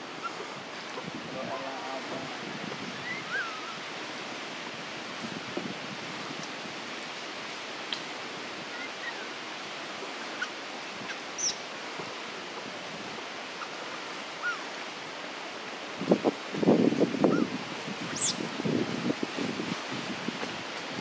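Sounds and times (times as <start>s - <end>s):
tree canopy hiss: 0.0s - 21.0s
faint bird chirps: 11.1s - 11.6s, 14.4s - 14.6s.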